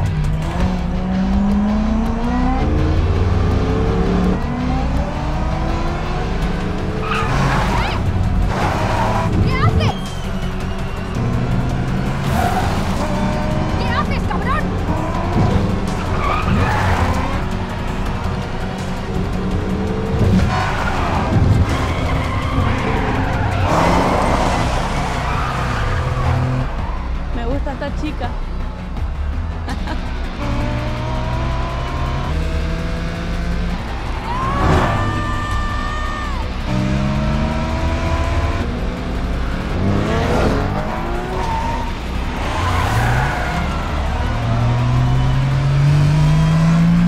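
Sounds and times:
car engines revving: 0.0 - 47.0
film music: 0.0 - 47.0
tyres squealing: 12.1 - 18.0.

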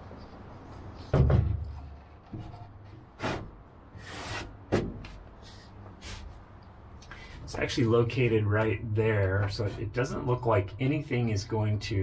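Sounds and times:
heavy thud on plywood: 1.1 - 1.7, 4.7 - 5.2
sharp knocks: 4.7 - 5.2.

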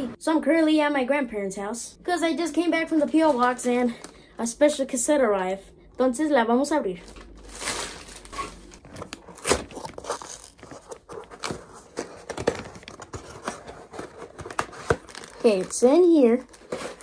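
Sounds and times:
cardboard box tearing: 8.2 - 17.0.

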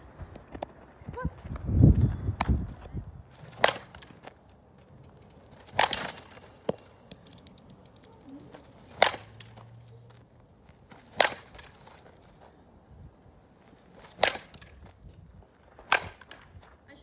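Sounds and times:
bat hitting softballs: 3.3 - 4.2, 5.3 - 9.8, 10.8 - 12.2, 13.8 - 15.0, 15.8 - 16.5.

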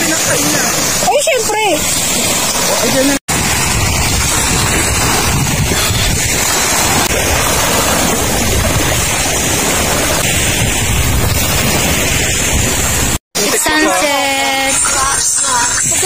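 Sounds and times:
small waves breaking on shore: 0.0 - 16.0
wind buffeting microphone: 1.8 - 13.2.

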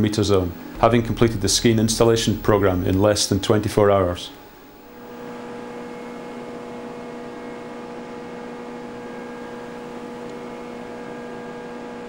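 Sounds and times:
ship machinery hum: 0.0 - 6.2.

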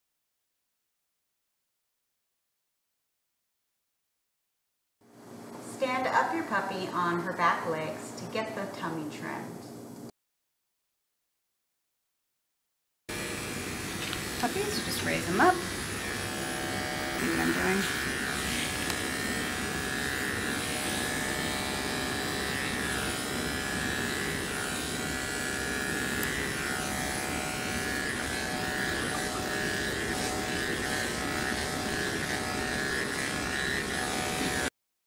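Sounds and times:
electric clippers buzzing: 13.1 - 34.8.

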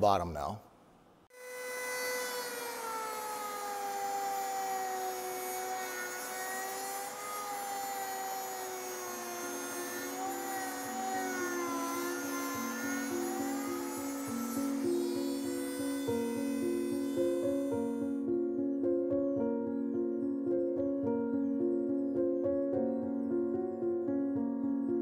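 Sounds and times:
rotary tool sanding whine: 1.3 - 18.3
background music: 10.2 - 25.0.

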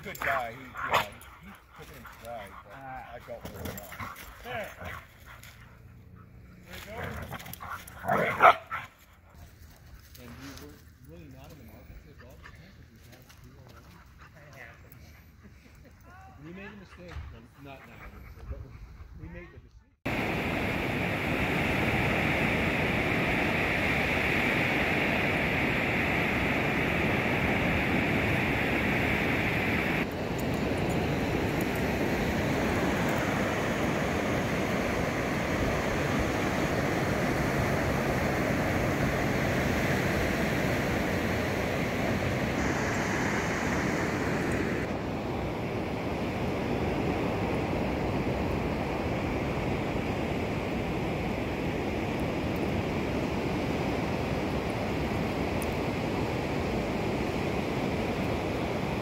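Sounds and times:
ocean surf breaking on beach: 20.1 - 59.0.

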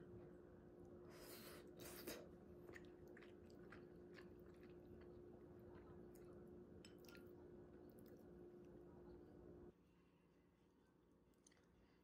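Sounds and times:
faint steady hum: 0.0 - 12.0
soft chewing: 0.8 - 9.5, 11.2 - 12.0.

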